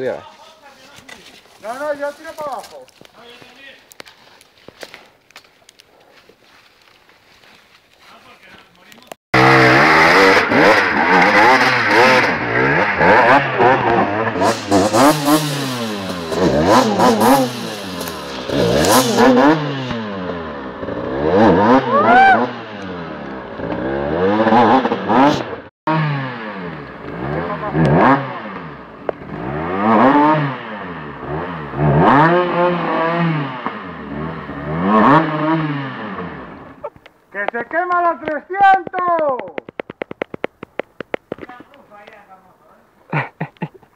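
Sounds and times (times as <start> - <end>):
dirt bike engines revving: 8.2 - 39.8.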